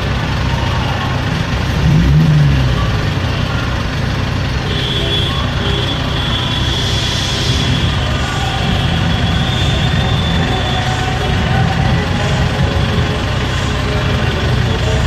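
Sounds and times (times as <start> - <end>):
car engine and traffic rumble: 0.0 - 15.0
high steady tone: 3.1 - 15.0
low rising tone: 6.1 - 15.0.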